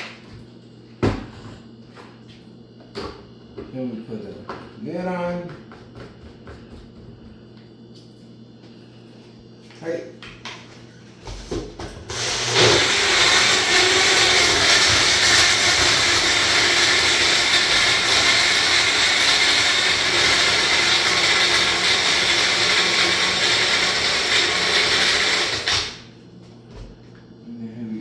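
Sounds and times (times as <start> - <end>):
blender motor running: 12.0 - 26.1.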